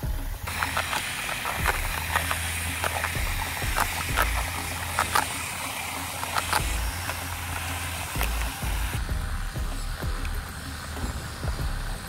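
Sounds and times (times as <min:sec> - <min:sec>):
low motor hum: 0:00.0 - 0:12.0
clicks and ticks of buckets: 0:00.4 - 0:08.9
sand scraping and spilling: 0:00.4 - 0:09.0.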